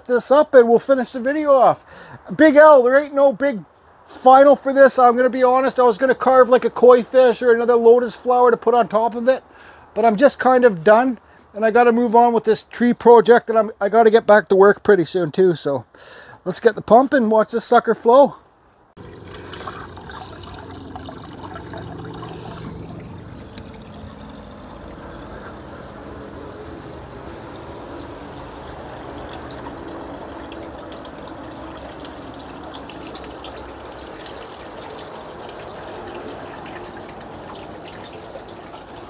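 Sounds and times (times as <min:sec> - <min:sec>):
fountain water trickling and splashing: 0:19.0 - 0:39.0.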